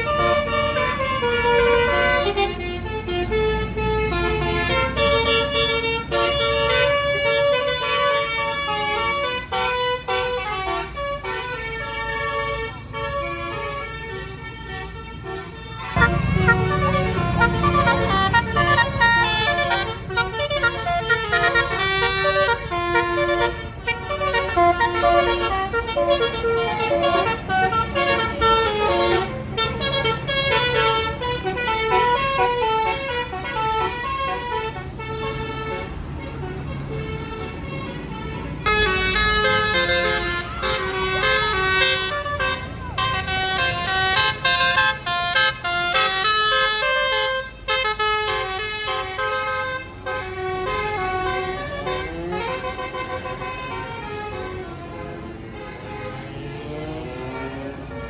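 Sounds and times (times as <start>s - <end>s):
bus engine running: 0.0s - 45.0s
musical air horn tune: 0.0s - 58.0s.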